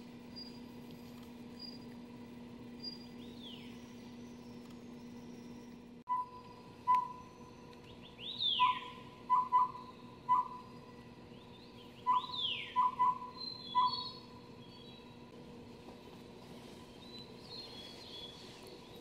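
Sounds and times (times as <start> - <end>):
bird down-slurred whistles: 2.8 - 10.8, 12.0 - 14.9
owlet whistled hoots: 4.4 - 10.9, 12.0 - 14.4.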